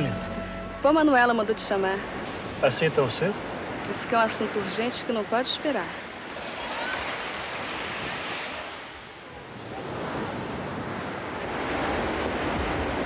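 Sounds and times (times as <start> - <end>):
ocean waves washing: 0.0 - 13.0.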